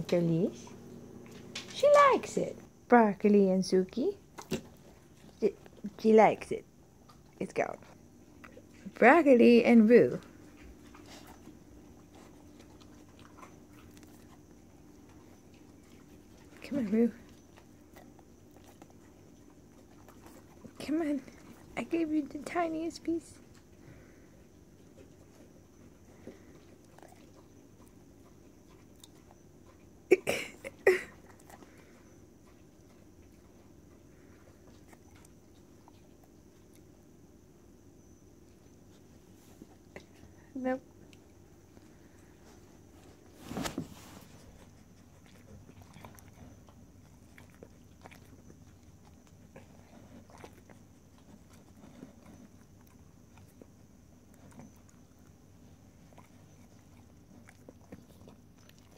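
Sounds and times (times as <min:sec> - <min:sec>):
dog lip and tongue clicks: 0:04.3 - 0:05.9, 0:26.2 - 0:29.9.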